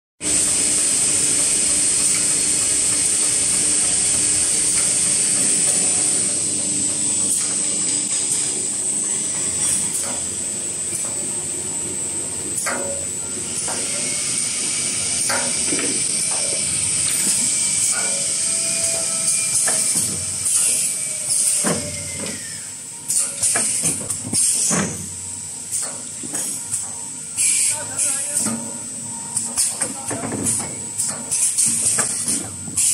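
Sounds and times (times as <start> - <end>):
machine hum: 0.2 - 23.2.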